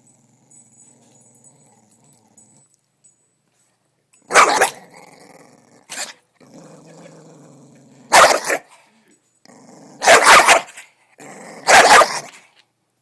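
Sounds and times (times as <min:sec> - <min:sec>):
dog growling: 0:00.0 - 0:02.8, 0:04.5 - 0:08.6, 0:09.5 - 0:10.3, 0:11.2 - 0:12.4
dog barking sharply: 0:04.3 - 0:04.8, 0:08.1 - 0:08.7, 0:10.0 - 0:10.8, 0:11.7 - 0:12.4.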